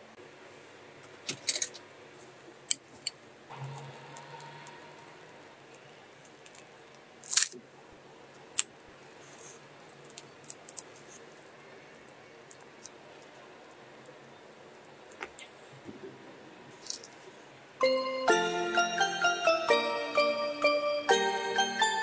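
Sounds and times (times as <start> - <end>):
faint hum: 3.4 - 6.9
crunchy crackle: 5.7 - 7.6.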